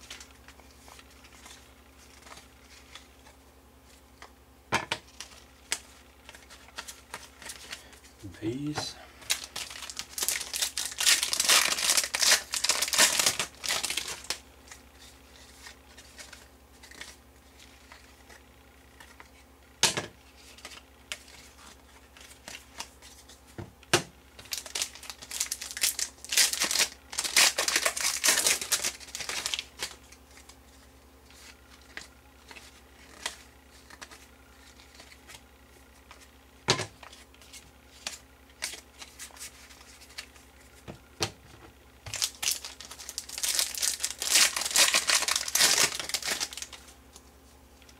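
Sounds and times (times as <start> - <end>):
wrappers tearing and crinkling: 8.6 - 14.8, 24.4 - 30.6, 42.1 - 46.9.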